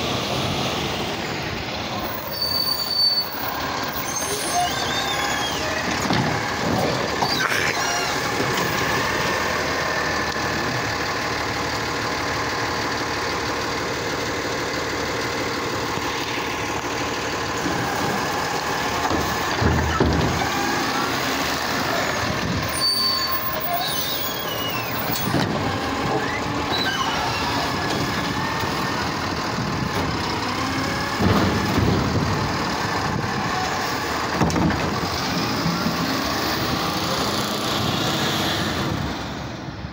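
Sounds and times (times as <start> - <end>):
garbage truck engine and hydraulics: 0.0 - 39.9
truck pulling away: 0.0 - 39.9
loud knocks: 31.1 - 32.6.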